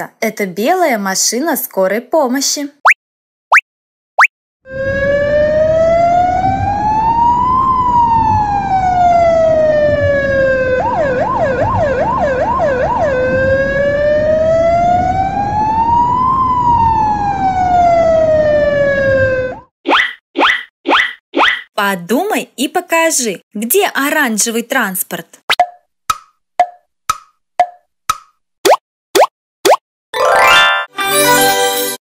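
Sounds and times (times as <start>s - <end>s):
ambulance siren wailing: 4.7s - 19.7s.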